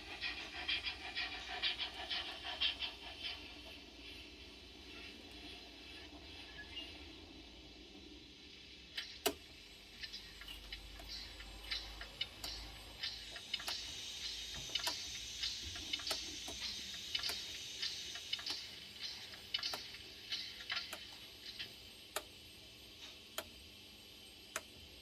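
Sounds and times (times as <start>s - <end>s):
turntable mechanism whirring: 0.0s - 25.0s
sharp mechanical clicks: 9.0s - 22.4s.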